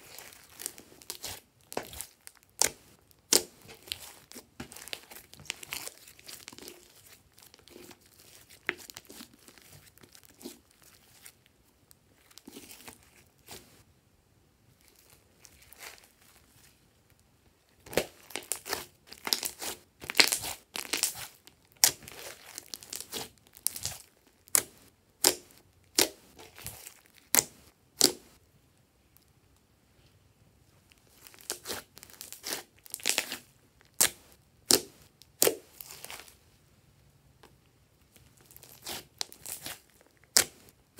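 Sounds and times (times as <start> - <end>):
hands squeezing slime: 0.0 - 11.4, 17.8 - 28.3, 38.4 - 40.8.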